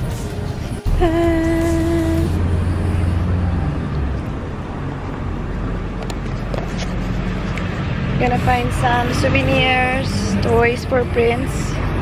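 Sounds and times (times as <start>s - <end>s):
steady pitched tone: 0.0s - 5.4s
roadway noise: 0.0s - 12.0s
vehicle engine rumble: 0.0s - 12.0s.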